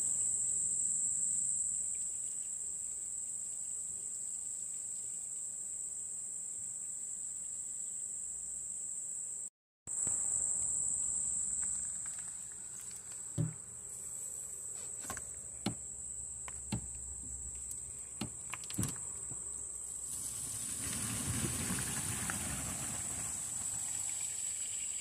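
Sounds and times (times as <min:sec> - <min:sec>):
crickets chirping: 0:00.0 - 0:25.0
water rushing through hose: 0:19.9 - 0:25.0.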